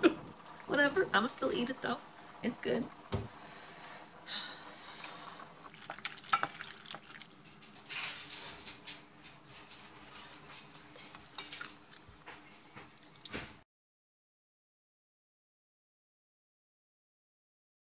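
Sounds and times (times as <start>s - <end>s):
faint steady hum: 0.0s - 13.6s
spoon stirring and scraping pot: 5.8s - 12.4s.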